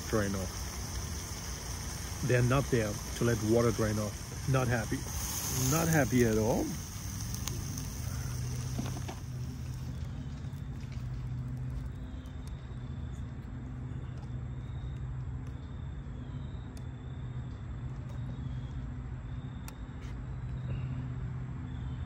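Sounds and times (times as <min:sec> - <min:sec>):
cooling fan humming: 0:00.0 - 0:15.5.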